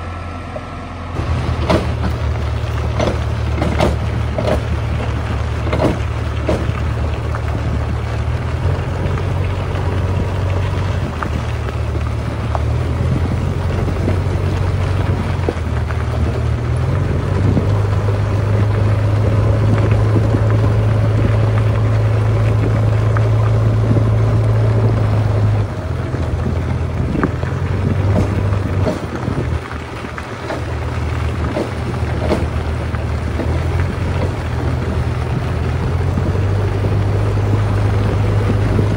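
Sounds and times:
diesel engine droning: 0:00.0 - 0:38.9.

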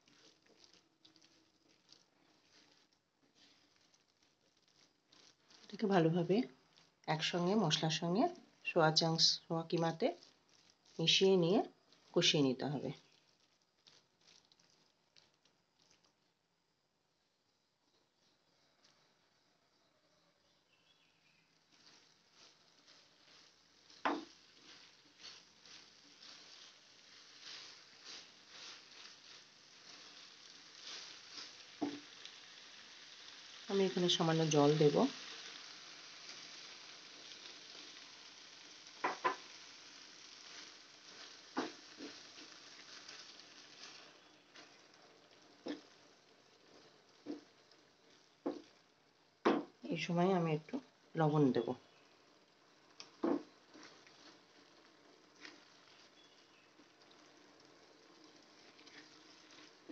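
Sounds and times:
wooden spatula scraping frying pan: 0:21.6 - 0:33.4, 0:34.6 - 0:48.8, 0:53.0 - 0:56.3.

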